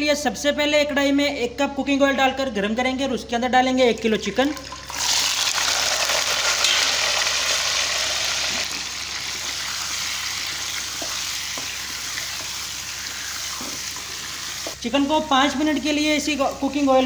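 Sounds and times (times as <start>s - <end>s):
chicken sizzling in hot oil: 4.8s - 14.8s.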